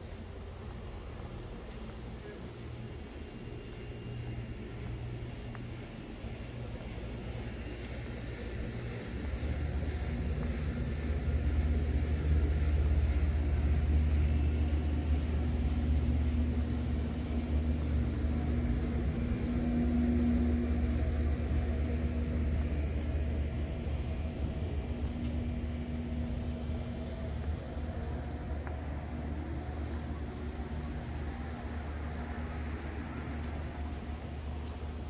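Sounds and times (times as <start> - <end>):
low mechanical hum: 0.0 - 35.0.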